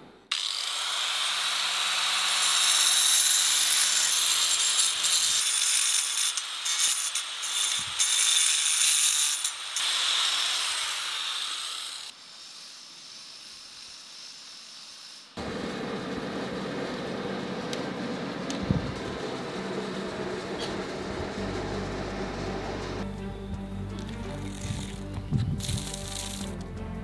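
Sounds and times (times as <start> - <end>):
angle grinder grinding stone: 0.3 - 15.3, 23.9 - 26.8
steady background noise: 15.4 - 26.6.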